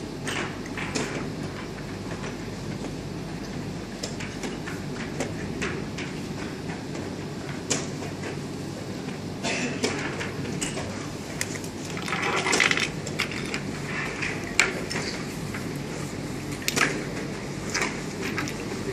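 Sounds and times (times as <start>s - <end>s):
room noise: 5.2s - 18.9s.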